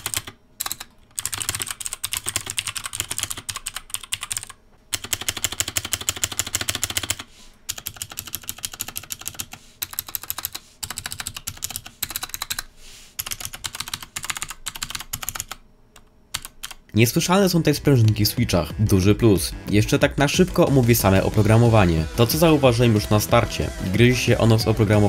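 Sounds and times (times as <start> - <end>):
mechanical keyboard typing: 0.0 - 16.8.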